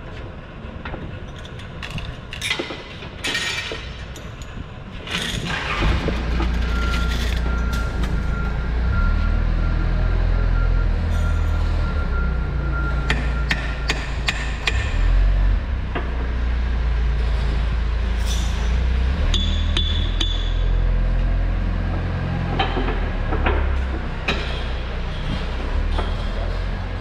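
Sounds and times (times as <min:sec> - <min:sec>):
low engine hum: 0:05.5 - 0:27.0.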